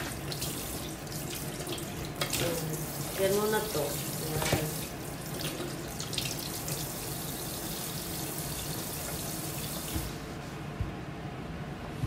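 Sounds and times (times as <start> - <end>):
chicken rinsed by hand: 0.0 - 10.2
tap running into sink: 4.2 - 5.8, 9.0 - 10.2.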